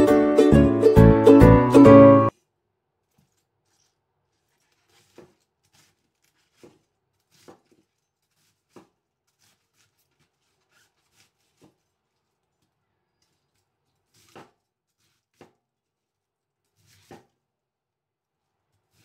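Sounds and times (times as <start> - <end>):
cleaver chopping cabbage on wood: 4.6 - 11.8, 14.1 - 15.6, 16.8 - 17.4.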